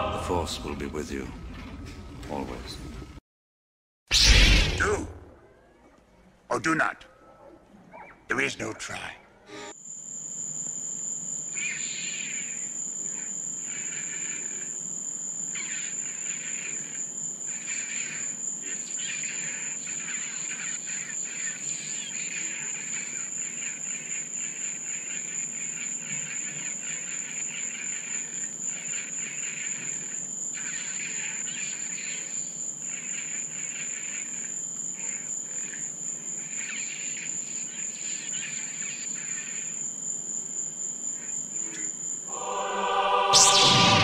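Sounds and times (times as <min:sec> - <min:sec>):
loud choral music: 0:00.0 - 0:00.9, 0:42.3 - 0:44.0
insect chirring: 0:09.7 - 0:42.3
cricket trill: 0:09.7 - 0:44.0.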